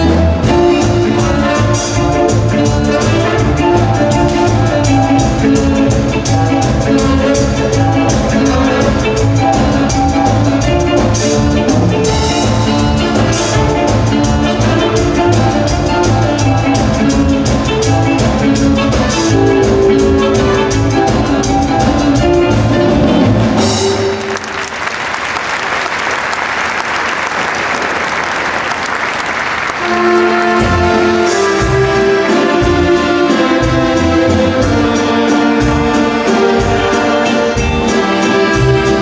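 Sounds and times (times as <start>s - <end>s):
band music with drum beat: 0.0s - 25.4s, 28.4s - 39.0s
audience applauding: 23.8s - 30.9s.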